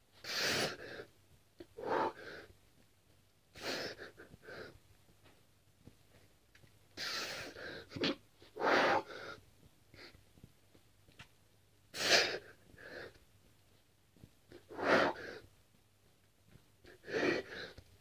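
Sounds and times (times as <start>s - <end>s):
man breathing hard: 0.2s - 2.6s, 8.5s - 10.2s, 12.0s - 13.2s, 14.5s - 15.5s, 16.8s - 17.9s.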